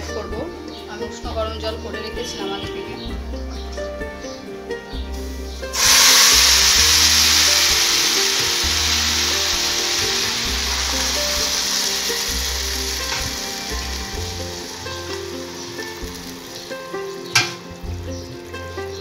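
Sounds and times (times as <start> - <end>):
water pouring: 5.7 - 18.1
oil sizzling in a pan: 5.7 - 18.6.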